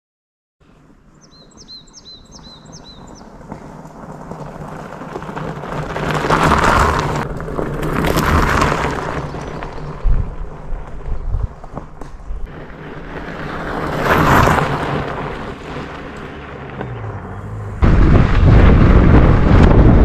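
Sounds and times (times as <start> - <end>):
wind and bike tyres rushing: 0.6 - 20.0
bird chirping: 1.1 - 3.3
sharp low bump: 16.1 - 20.0.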